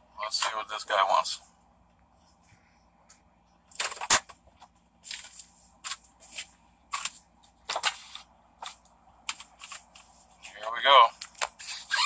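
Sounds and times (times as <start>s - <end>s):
rustling: 3.6s - 12.0s.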